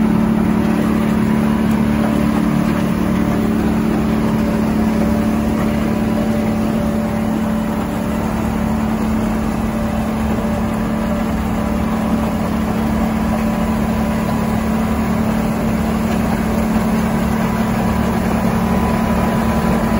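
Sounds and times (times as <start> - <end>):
motor humming steadily: 0.0 - 19.9.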